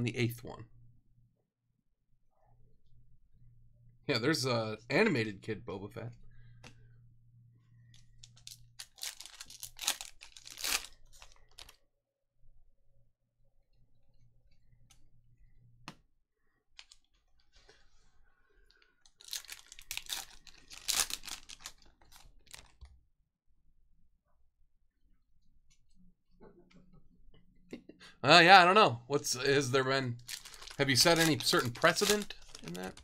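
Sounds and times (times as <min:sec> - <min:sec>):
card pack wrappers tearing: 0:08.3 - 0:11.7, 0:19.1 - 0:22.7, 0:30.2 - 0:33.0.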